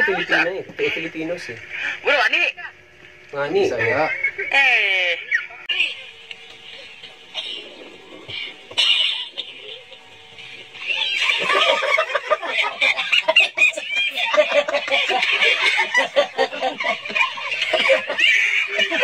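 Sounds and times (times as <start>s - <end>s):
young men laughing: 8.3s - 19.0s.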